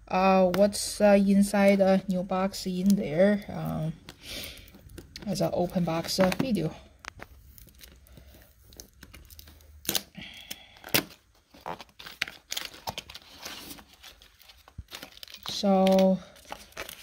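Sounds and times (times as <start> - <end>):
plastic bag crinkle: 2.8 - 17.0.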